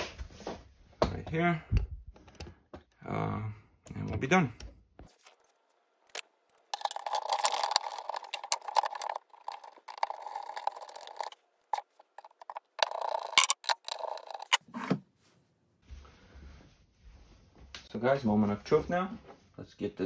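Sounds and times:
screwdriver turning screws in metal: 0:06.8 - 0:14.6.

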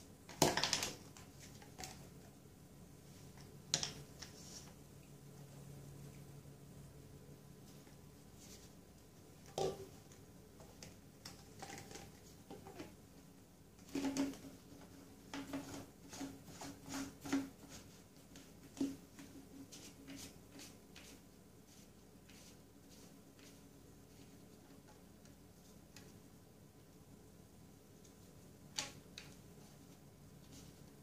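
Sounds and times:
plastic pipe parts knocking: 0:09.4 - 0:09.9, 0:13.8 - 0:17.6.

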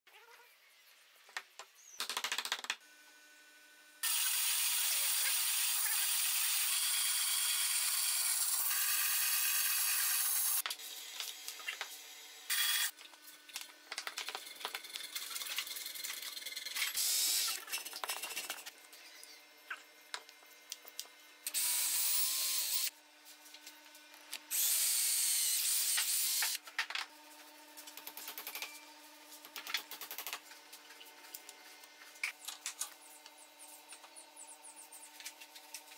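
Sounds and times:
cordless drill boring into wood: 0:04.0 - 0:10.6, 0:21.5 - 0:22.9.

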